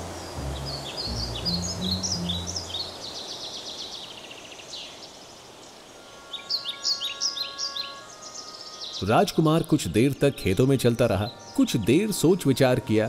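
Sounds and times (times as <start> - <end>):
low held notes: 0.0 - 3.0
birds chirping and twittering: 0.0 - 12.8.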